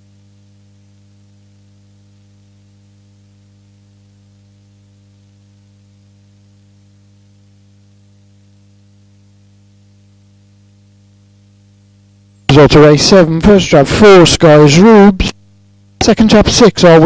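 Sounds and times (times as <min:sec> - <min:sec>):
electrical mains hum: 0:00.0 - 0:17.0
high-pitched whine: 0:12.5 - 0:15.4, 0:16.0 - 0:17.0.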